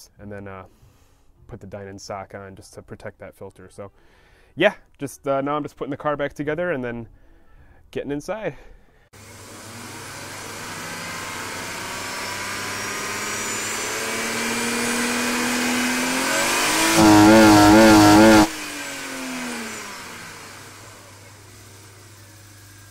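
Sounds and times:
car engine revving: 0:09.4 - 0:21.3.

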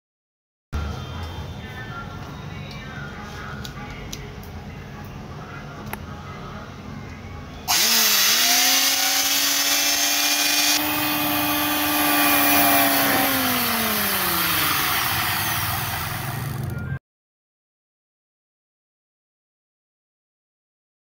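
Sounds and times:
electric planer motor whine: 0:07.7 - 0:16.9.

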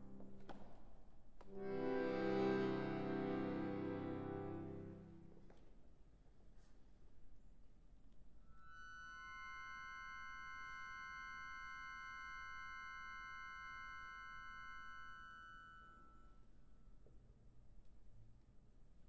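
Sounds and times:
accordion chord: 0:01.5 - 0:05.5.

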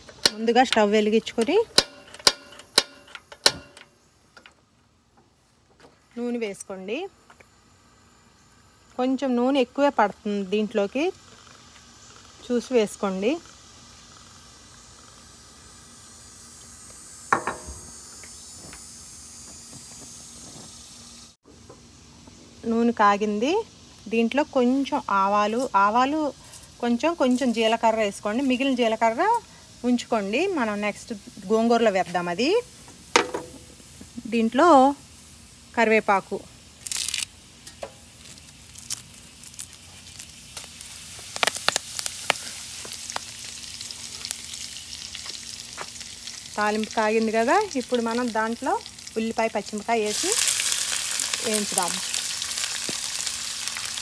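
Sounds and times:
leaves sizzling in hot oil: 0:00.0 - 0:04.3, 0:06.0 - 0:54.0
gas burner hissing: 0:00.0 - 0:04.6, 0:05.8 - 0:21.4, 0:23.1 - 0:54.0
sharp metallic clank: 0:01.7 - 0:04.0
oil popping and crackling: 0:10.2 - 0:18.8, 0:36.8 - 0:54.0.

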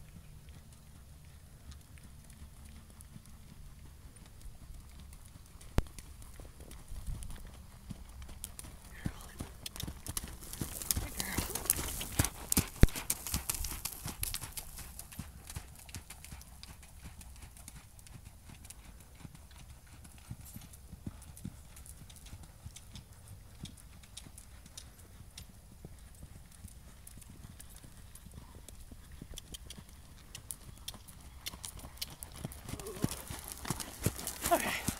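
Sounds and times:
horse hoofbeats on sand: 0:05.2 - 0:34.9.

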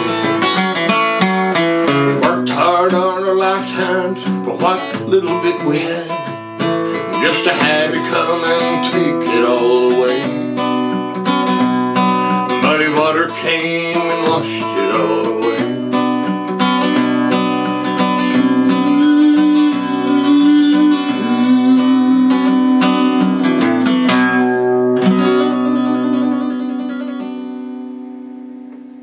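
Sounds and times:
acoustic guitar music: 0:00.0 - 0:29.0.

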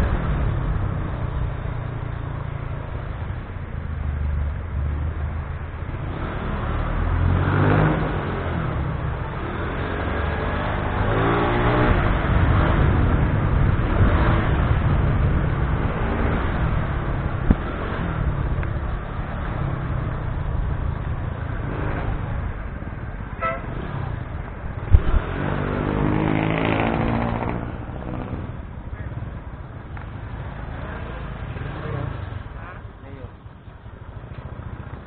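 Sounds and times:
short horn beep: 0:23.4 - 0:23.7.

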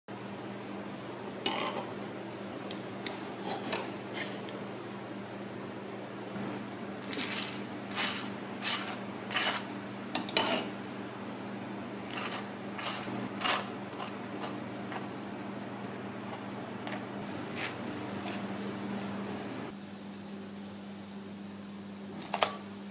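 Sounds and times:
knife scraping jam on toast: 0:07.0 - 0:09.7, 0:12.0 - 0:15.1.

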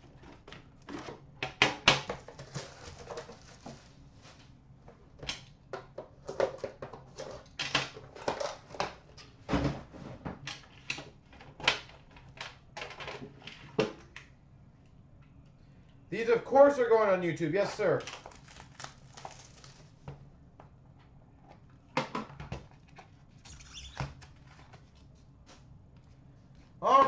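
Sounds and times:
card packaging rustling: 0:02.2 - 0:04.5, 0:17.7 - 0:20.0.

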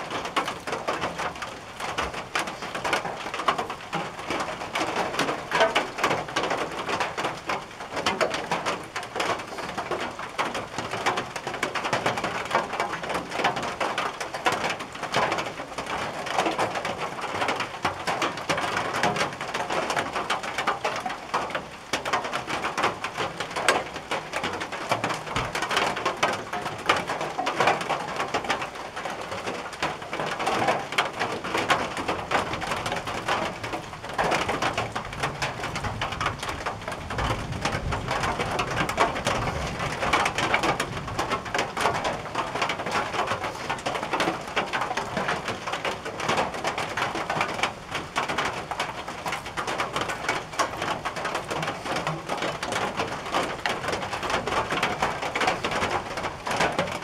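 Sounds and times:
rain on a tin roof: 0:00.0 - 0:57.0.

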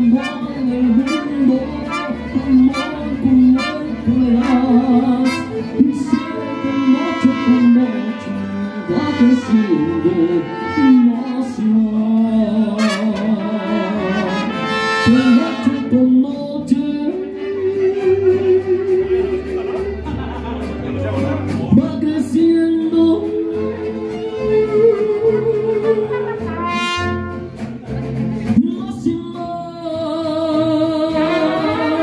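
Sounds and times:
trumpets: 0:00.0 - 0:11.7, 0:12.7 - 0:16.2, 0:26.1 - 0:27.6
bass guitar: 0:00.0 - 0:32.0
strummed guitars: 0:00.0 - 0:32.0.

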